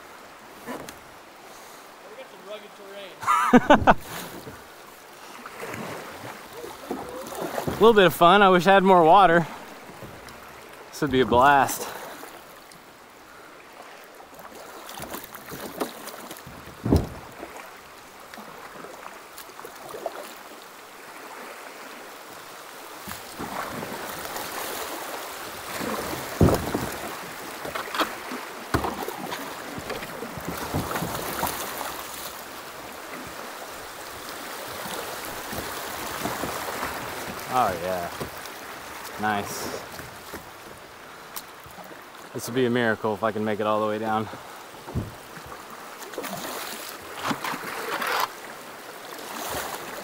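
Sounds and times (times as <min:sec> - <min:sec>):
river rapids rushing and splashing: 0:16.2 - 0:50.0
sharp knocks: 0:16.5 - 0:17.3.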